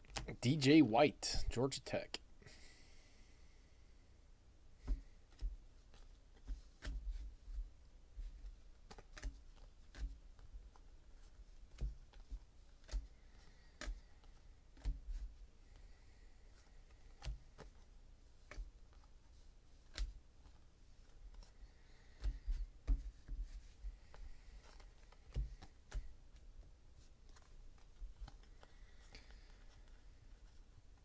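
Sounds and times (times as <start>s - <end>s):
cards flipping and snapping: 8.3s - 15.3s, 16.8s - 26.5s, 27.2s - 30.6s.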